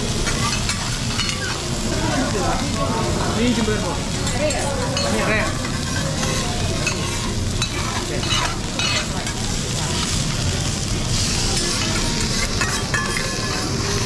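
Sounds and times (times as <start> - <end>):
food sizzling on a griddle: 0.0 - 14.0
metal spatulas scraping: 11.2 - 14.0.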